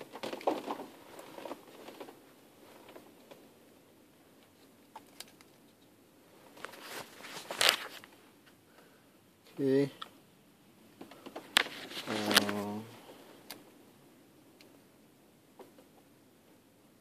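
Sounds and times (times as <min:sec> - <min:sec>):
plastic housing rustling: 0:06.5 - 0:08.1.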